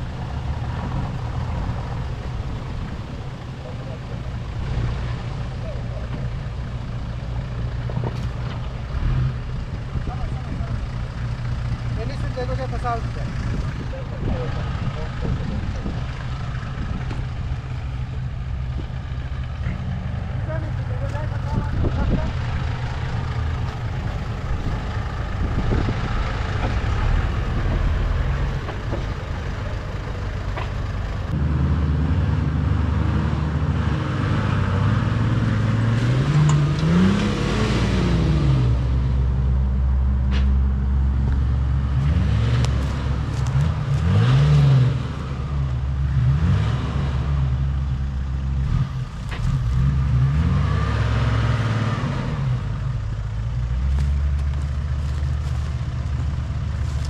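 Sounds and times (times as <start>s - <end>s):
truck engine revving in mud: 31.2s - 39.3s, 41.5s - 47.8s, 48.5s - 57.0s.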